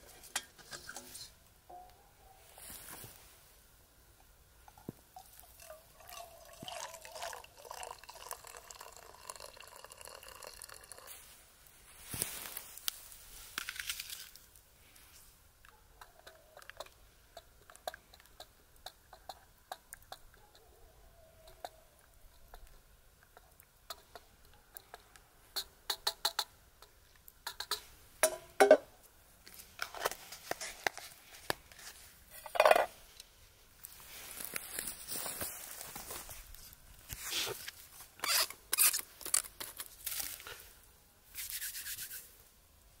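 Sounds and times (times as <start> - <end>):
wooden spoon stirring in metal mug: 5.2 - 11.1.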